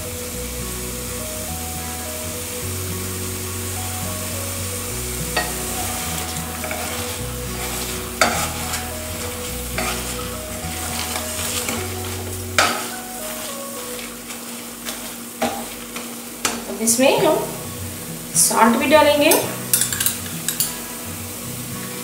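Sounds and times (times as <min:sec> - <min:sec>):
steady sizzle of frying: 0:00.0 - 0:22.0
potato masher scraping masala: 0:06.3 - 0:12.4.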